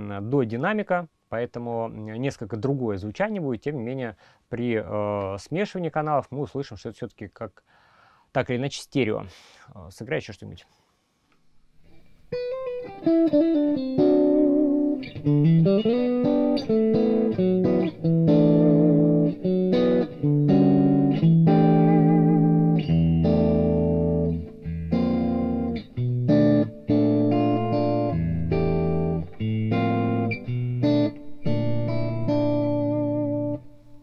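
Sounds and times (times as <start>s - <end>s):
electric guitar through amplifier: 11.8s - 34.0s.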